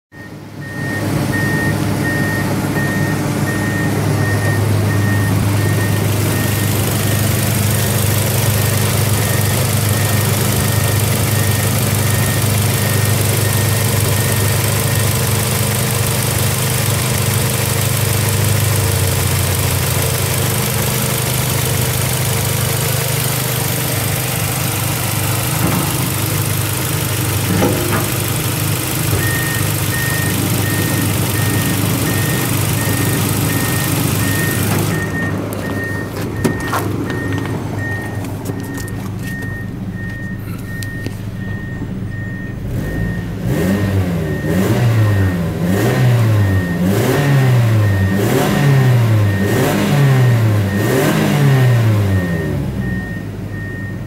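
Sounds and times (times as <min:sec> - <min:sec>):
car engine idling: 0:00.1 - 0:54.0
faint regular beeping: 0:29.2 - 0:43.2.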